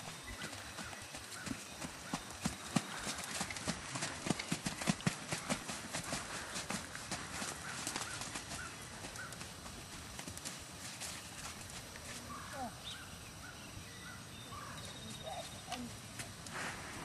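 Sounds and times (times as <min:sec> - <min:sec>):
hooves clip-clopping on dirt: 0:00.0 - 0:12.5, 0:15.0 - 0:17.0.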